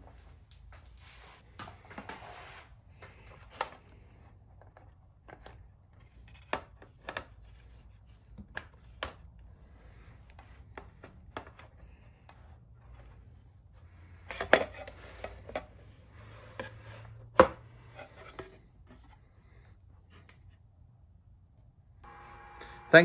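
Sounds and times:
faint low hum: 15.5 - 23.0.

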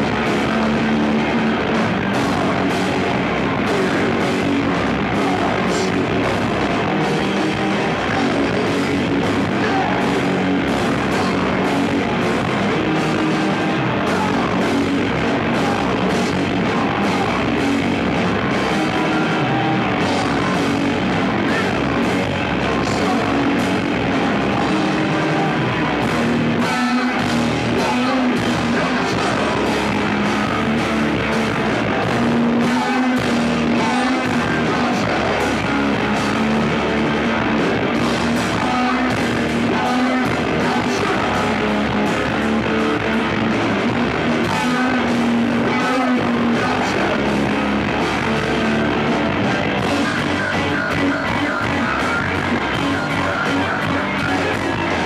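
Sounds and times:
bass guitar: 0.0 - 55.0
drum kit: 0.0 - 55.0
electric guitar: 0.0 - 55.0.

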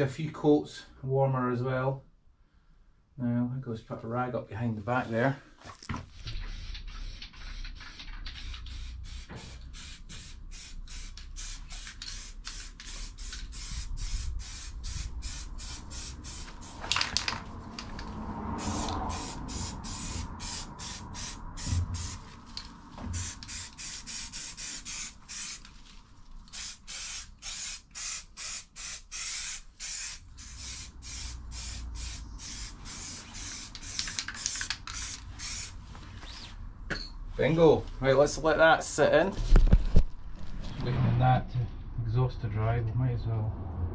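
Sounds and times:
spray can hissing: 6.3 - 17.0, 18.6 - 22.3, 23.1 - 25.7, 26.4 - 35.8.

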